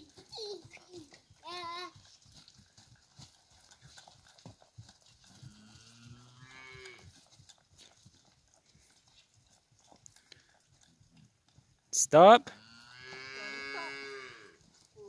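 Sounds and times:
cow mooing: 0:05.5 - 0:07.0, 0:12.5 - 0:14.6.

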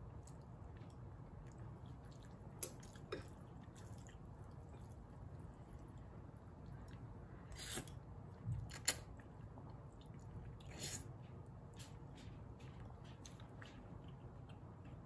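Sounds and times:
chewing mouth sounds: 0:00.2 - 0:08.0
person slurping noodles: 0:07.5 - 0:07.9.

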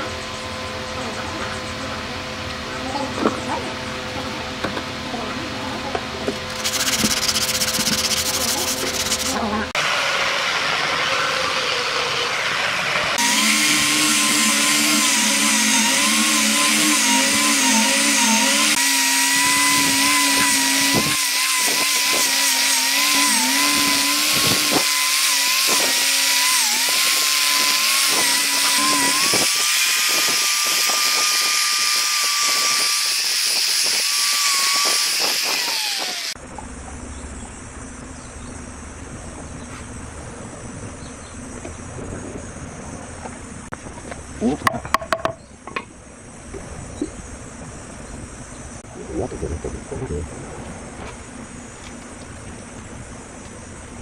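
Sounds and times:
angle grinder sanding wood: 0:06.0 - 0:36.4.

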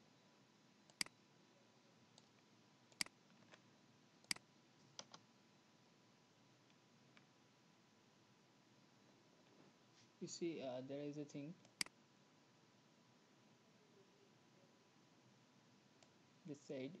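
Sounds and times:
computer mouse clicks: 0:00.9 - 0:01.2, 0:02.2 - 0:03.6, 0:04.2 - 0:05.2, 0:11.6 - 0:12.0.

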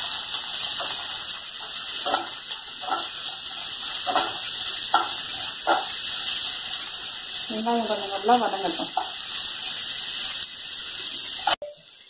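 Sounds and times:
frying hiss: 0:00.0 - 0:12.0
metal spoon scraping frying pan: 0:01.6 - 0:06.0.

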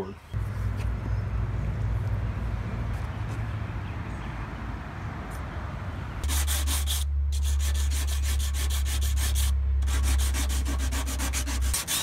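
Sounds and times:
sandpaper rubbing on metal: 0:06.2 - 0:12.0.

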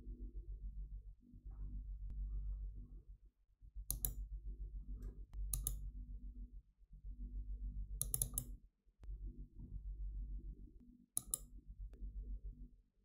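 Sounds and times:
low hum: 0:00.0 - 0:08.4
computer mouse clicking: 0:03.9 - 0:04.2, 0:05.4 - 0:05.8, 0:08.0 - 0:08.6, 0:11.2 - 0:11.5.

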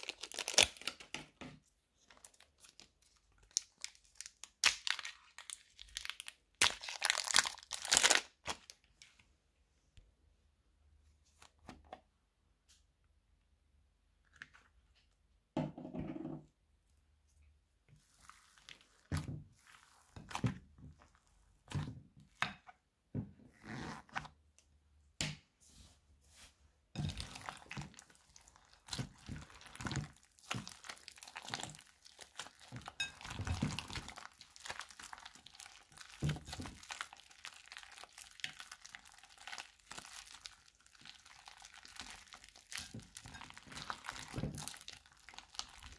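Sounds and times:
hands squishing slime: 0:02.2 - 0:08.8, 0:18.0 - 0:22.0, 0:27.0 - 0:45.9.

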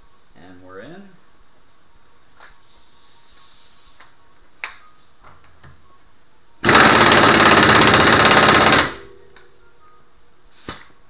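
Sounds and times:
impact wrench hammering: 0:06.6 - 0:09.1.

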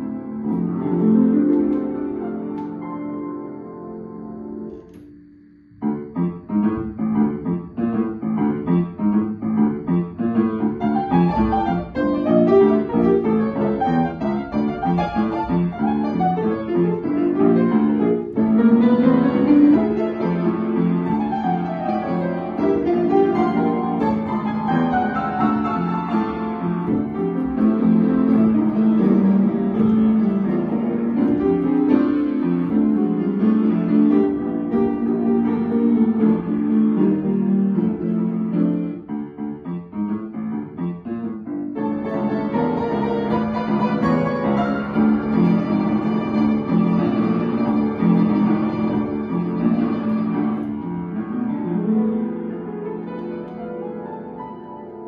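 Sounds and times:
solo piano playing: 0:00.0 - 0:55.0.

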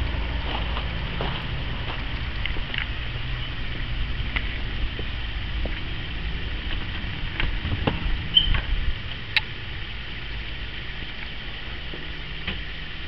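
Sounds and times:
handheld camera rumble: 0:00.0 - 0:13.0
wind noise on microphone: 0:00.0 - 0:13.0
door squeak: 0:08.3 - 0:08.7.

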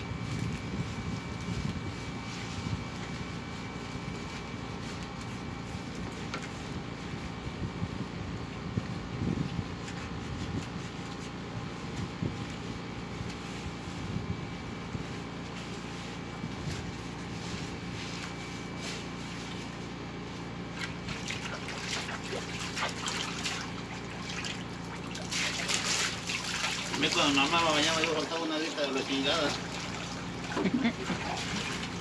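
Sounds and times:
dog being scrubbed by hand: 0:09.4 - 0:14.1, 0:14.9 - 0:32.0
water sloshing and splashing: 0:20.7 - 0:32.0.

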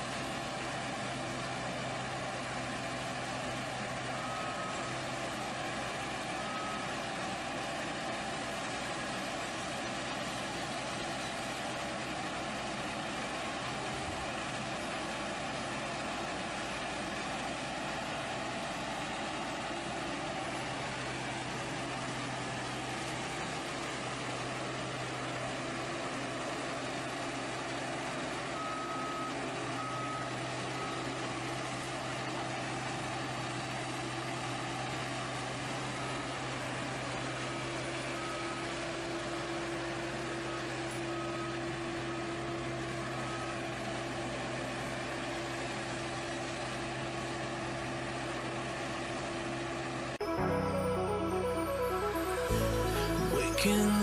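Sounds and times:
heavy vehicle engines running: 0:00.0 - 0:54.0
short high beeps: 0:50.2 - 0:54.0.

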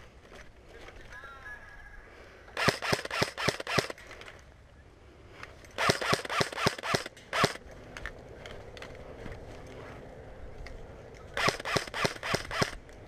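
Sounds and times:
airsoft rifle shots: 0:02.6 - 0:04.0, 0:05.8 - 0:07.6, 0:11.4 - 0:12.8.

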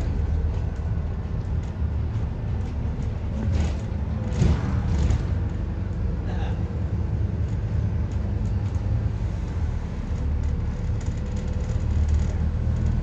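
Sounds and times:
bus diesel engine rumble: 0:00.0 - 0:13.0.

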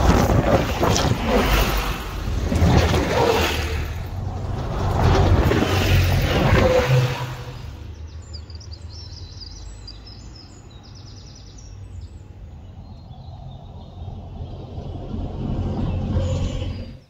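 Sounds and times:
buses passing close by: 0:00.0 - 0:17.0.

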